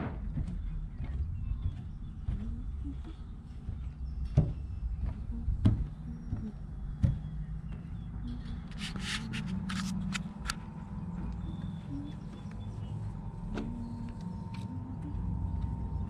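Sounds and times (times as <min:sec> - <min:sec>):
footsteps on wooden planks: 0:00.0 - 0:08.3
low steady rumble: 0:00.0 - 0:16.0.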